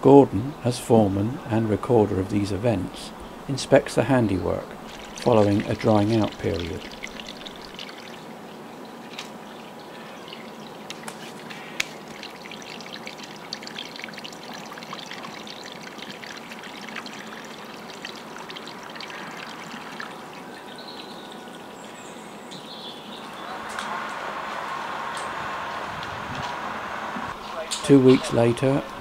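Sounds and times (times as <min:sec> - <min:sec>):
water trickling and splashing: 0:03.1 - 0:26.7
drip-like ticks: 0:04.9 - 0:08.2, 0:10.9 - 0:20.4.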